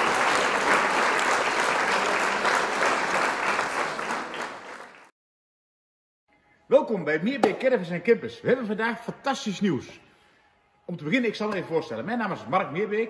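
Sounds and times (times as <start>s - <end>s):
crowd applause: 0.0s - 5.1s.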